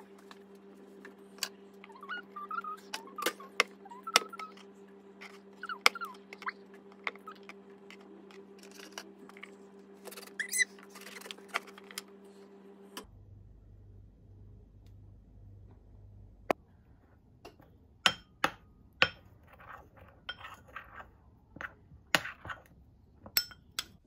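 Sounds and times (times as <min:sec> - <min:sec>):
steady low hum: 0:00.0 - 0:24.0
short squeaks: 0:10.1 - 0:11.2.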